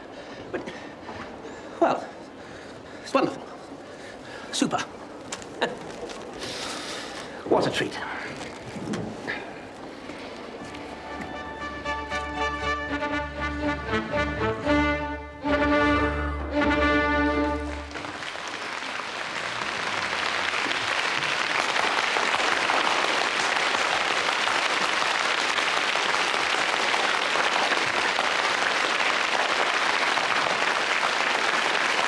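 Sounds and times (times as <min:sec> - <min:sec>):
audience applauding: 0:16.6 - 0:32.0.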